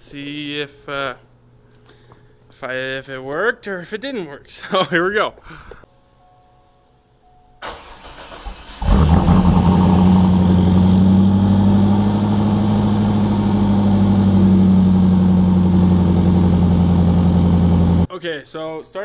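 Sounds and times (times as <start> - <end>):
man talking: 0.0 - 1.2, 2.5 - 5.4, 18.1 - 19.0
car engine cranking on starter: 7.6 - 11.1
car engine idling loudly: 8.9 - 18.1.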